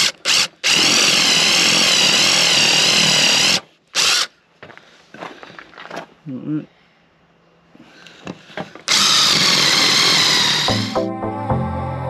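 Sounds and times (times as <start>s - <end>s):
power drill boring into wood: 0.0s - 4.3s, 8.9s - 11.0s.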